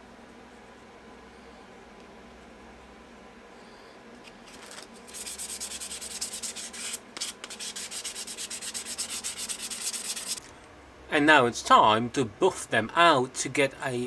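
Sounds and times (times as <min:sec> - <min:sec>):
hand sanding with abrasive pad: 0:05.0 - 0:10.5.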